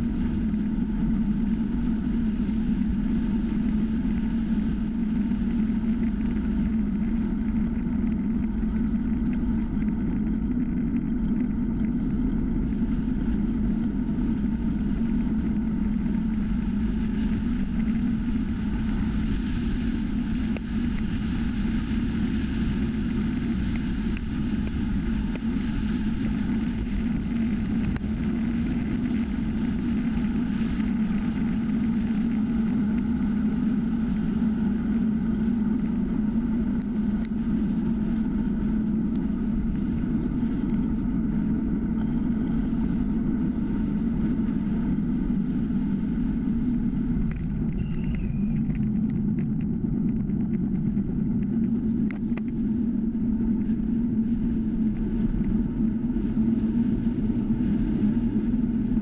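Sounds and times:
bicycle tyres rumbling on asphalt: 0.0 - 59.0
constant low hum: 0.0 - 59.0
wind noise: 0.0 - 59.0.

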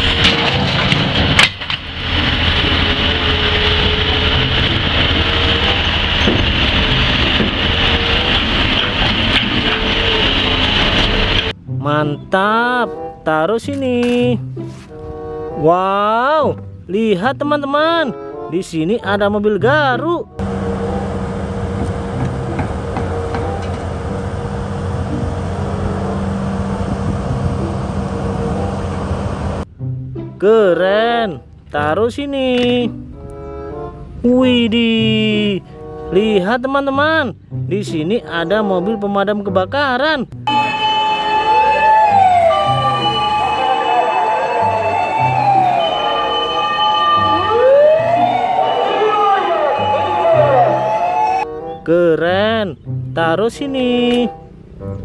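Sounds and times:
diesel engine running: 0.0 - 11.6, 20.4 - 29.7.

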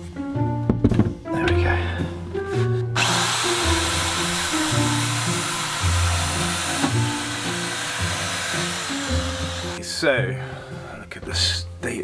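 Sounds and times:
background music: 0.0 - 12.0
power drill whirring: 3.0 - 9.8.

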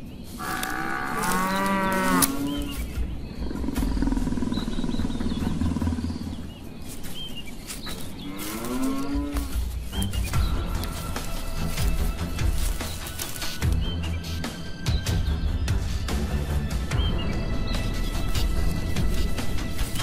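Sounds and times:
buffalo bellowing: 0.4 - 2.7
rough pulsing growl: 3.4 - 6.6.

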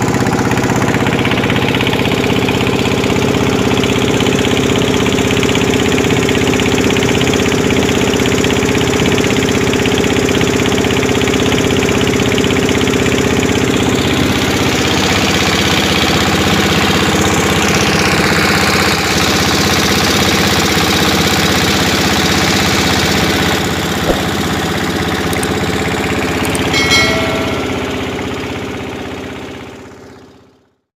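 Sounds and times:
motorboat engine running: 0.0 - 30.5
short electronic chime: 26.7 - 28.9.

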